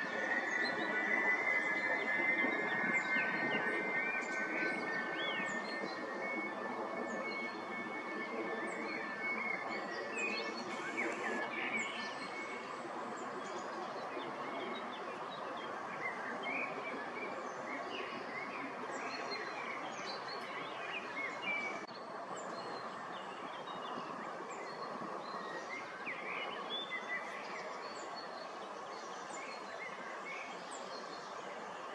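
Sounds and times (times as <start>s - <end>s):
steady background noise: 0.0s - 31.9s
birds chirping: 9.4s - 12.2s.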